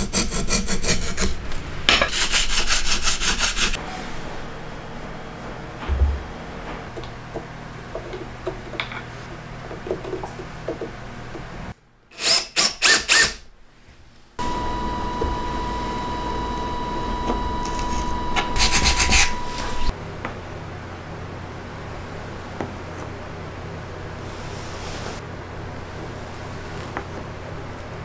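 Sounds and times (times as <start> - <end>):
power planer scraping strokes: 17.4 - 19.9.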